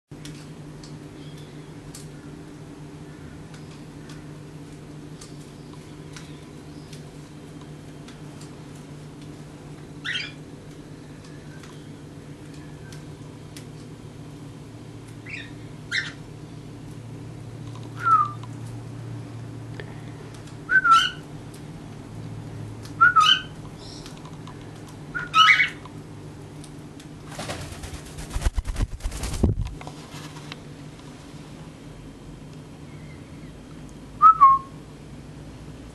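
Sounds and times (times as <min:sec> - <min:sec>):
parrot whistled chirps: 0:18.0 - 0:18.4, 0:20.7 - 0:21.2, 0:23.0 - 0:23.5, 0:34.2 - 0:34.7.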